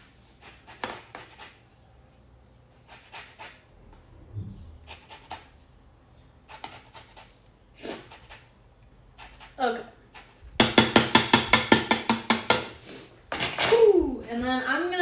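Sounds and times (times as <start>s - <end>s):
soft low bump: 4.2s - 4.8s
zester scraping lemon rind: 6.5s - 8.5s.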